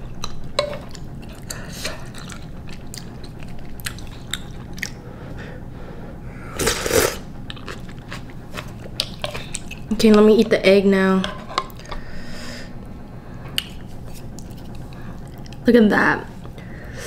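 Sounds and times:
chewing with mouth clicks: 0.0 - 5.0, 7.4 - 10.2, 13.6 - 15.7
slurping broth: 6.5 - 7.8.

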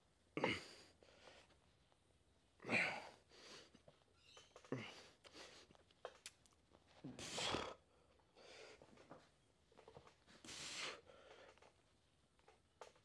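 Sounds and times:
man breathing with effort: 7.1 - 9.0, 10.4 - 11.7.

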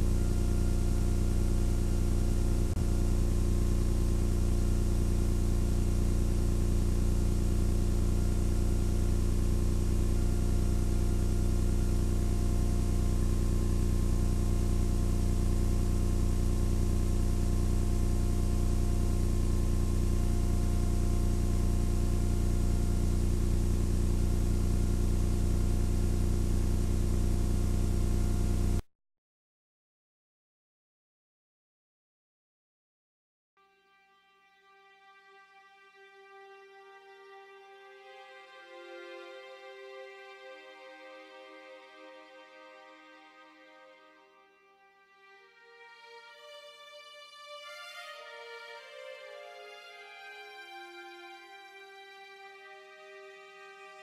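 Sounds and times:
low machine hum with tones: 0.0 - 28.8.

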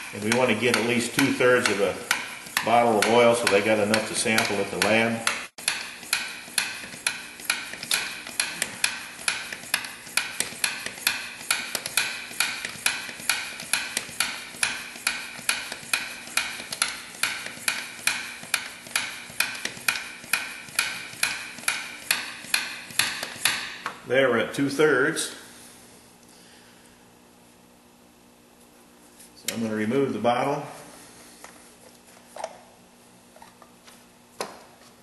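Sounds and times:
hand vacuum pump clicking: 0.1 - 23.5.

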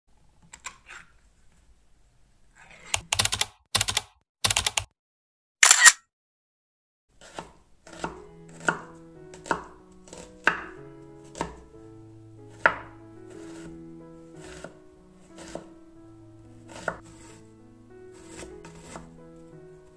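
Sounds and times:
knife chopping on wooden board: 7.2 - 11.6, 12.5 - 13.7, 14.4 - 14.8, 15.4 - 15.7, 16.7 - 17.4, 18.2 - 19.1.

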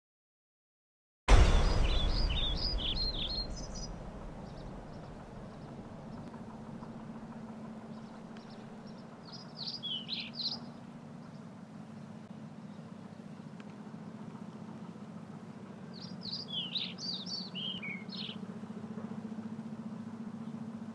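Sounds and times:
low outdoor rumble: 1.3 - 20.9
songbirds twittering: 1.4 - 14.6, 15.8 - 18.5.

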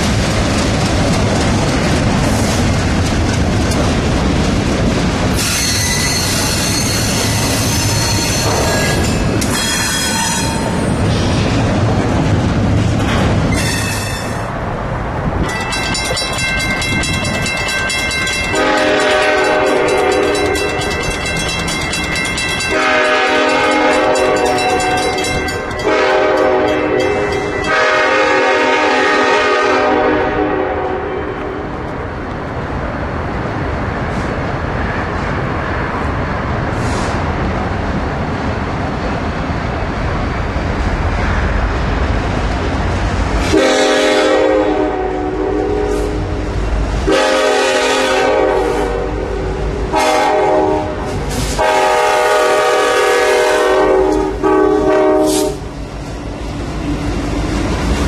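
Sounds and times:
train rumbling past: 0.0 - 58.0
high squeal: 5.4 - 11.3
locomotive air horn: 18.5 - 20.6, 22.7 - 25.1, 25.8 - 31.7, 43.5 - 46.3, 47.0 - 55.7.

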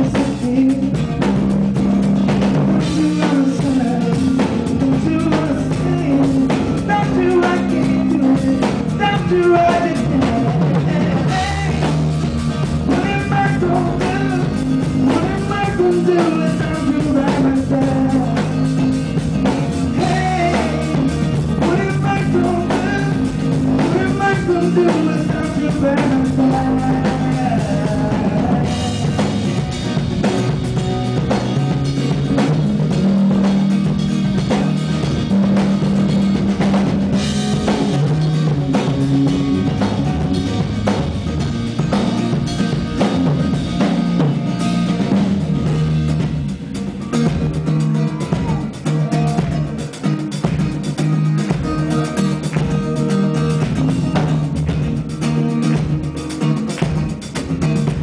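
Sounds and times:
man singing: 0.0 - 1.6, 2.7 - 29.8, 47.6 - 56.6
acoustic guitar: 0.0 - 58.0
drum kit with cymbals: 0.0 - 58.0
electric bass: 0.0 - 58.0.

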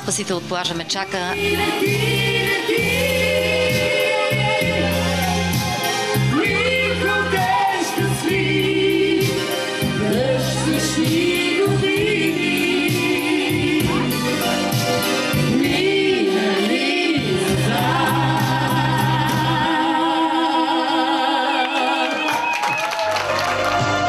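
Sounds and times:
backing music with steady beat: 0.0 - 22.6
woman and man singing duet: 6.2 - 14.3, 15.5 - 22.7.

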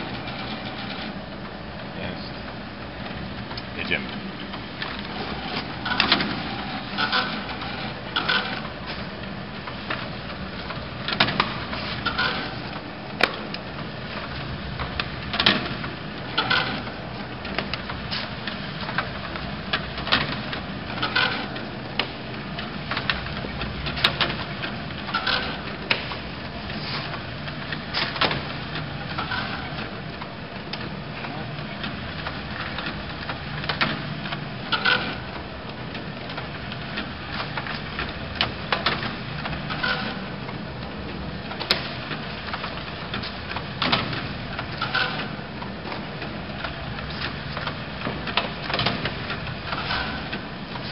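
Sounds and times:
machine humming: 0.0 - 50.9
sharp clicks and knocks: 9.6 - 26.3, 27.0 - 50.9.

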